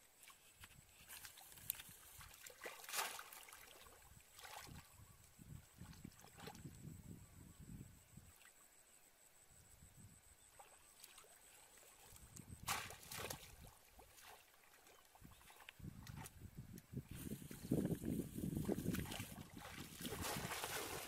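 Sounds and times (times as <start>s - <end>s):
water sloshing: 0.2s - 4.9s, 18.6s - 21.0s
water splashes: 0.2s - 4.9s, 10.5s - 16.4s, 17.4s - 21.0s.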